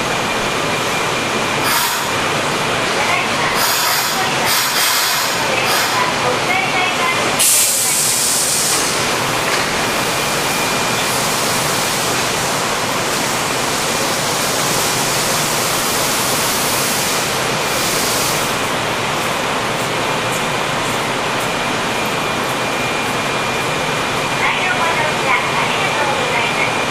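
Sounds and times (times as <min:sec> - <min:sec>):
subway platform rushing noise: 0:00.0 - 0:26.9
burst of hiss: 0:07.4 - 0:09.0.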